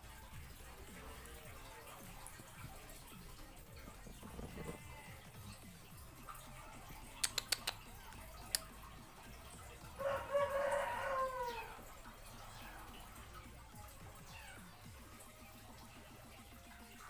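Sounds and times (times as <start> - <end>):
sharp clicks: 7.2 - 8.7.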